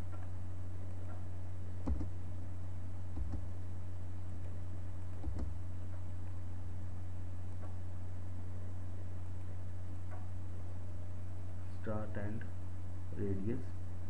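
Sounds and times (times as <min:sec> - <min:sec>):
low electrical hum: 0:00.0 - 0:14.0
computer mouse clicks: 0:01.8 - 0:02.1, 0:03.2 - 0:03.5, 0:05.2 - 0:05.6.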